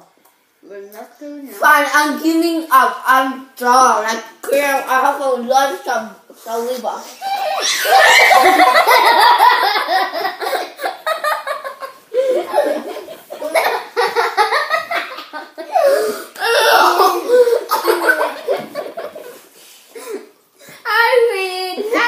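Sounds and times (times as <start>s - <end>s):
girls laughing loudly: 7.2s - 19.5s.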